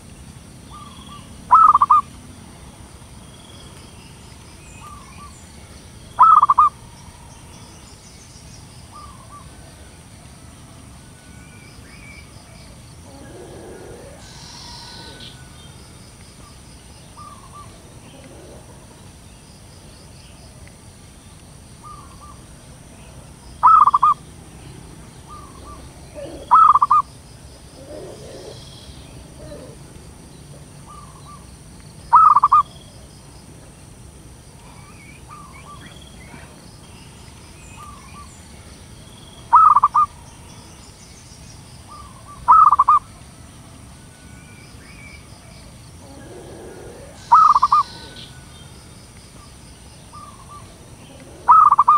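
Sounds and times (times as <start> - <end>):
dove cooing: 0.7 - 2.1, 6.2 - 6.8, 13.0 - 15.6, 17.2 - 19.0, 23.6 - 24.2, 25.2 - 31.4, 32.1 - 32.7, 39.5 - 40.1, 41.9 - 43.0, 46.0 - 48.5, 50.1 - 51.9.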